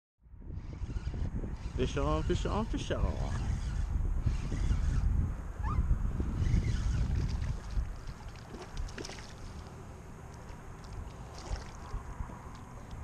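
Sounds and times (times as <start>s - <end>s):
wind rumbling on microphone: 0.2s - 13.0s
water lapping and splashing: 6.8s - 13.0s.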